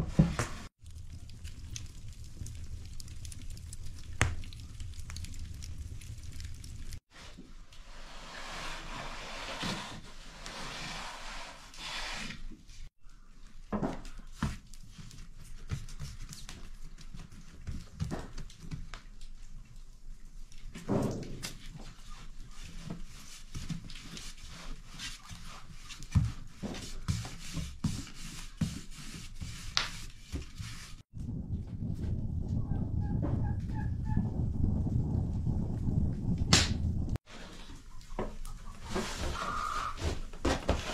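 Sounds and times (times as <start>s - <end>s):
wood fire hissing: 0.6s - 7.1s, 34.3s - 37.7s.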